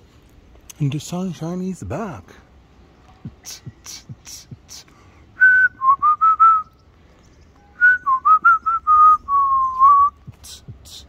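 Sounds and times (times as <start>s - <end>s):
person whistling a tune: 5.4s - 6.8s, 7.6s - 11.0s.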